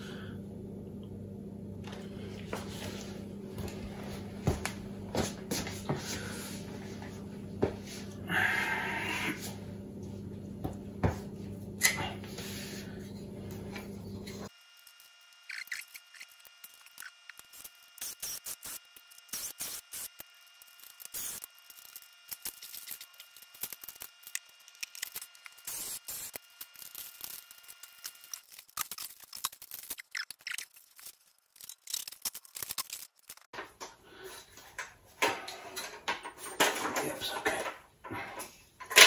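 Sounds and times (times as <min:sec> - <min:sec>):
cable handling clicks and scrapes: 0:26.7 - 0:33.9.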